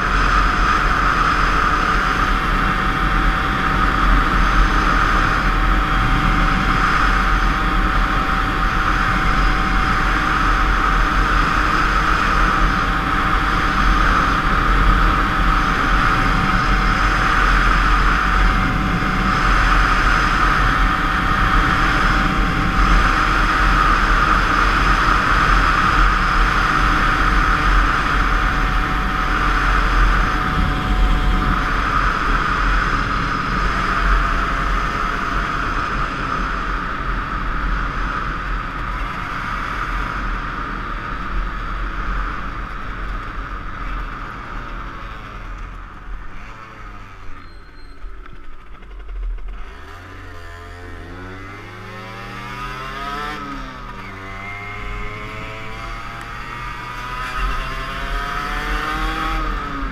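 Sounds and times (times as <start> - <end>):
wind noise on microphone: 0.0 - 44.0
two-stroke motorcycle engine running: 0.0 - 59.9.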